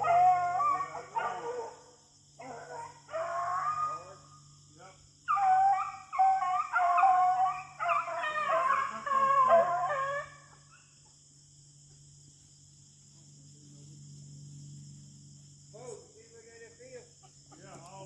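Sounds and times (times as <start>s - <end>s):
dogs baying: 0.0s - 4.2s, 5.3s - 11.0s.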